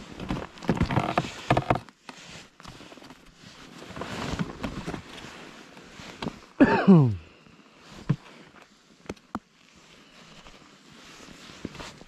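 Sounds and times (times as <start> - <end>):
clothing rustling: 2.1 - 6.6, 9.6 - 12.0.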